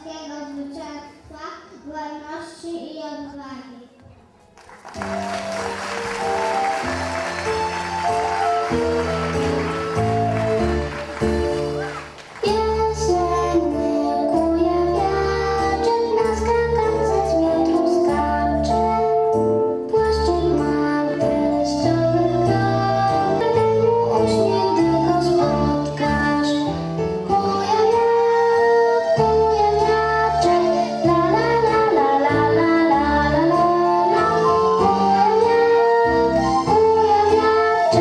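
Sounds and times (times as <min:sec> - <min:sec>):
music with steady beat: 0:05.1 - 0:13.2.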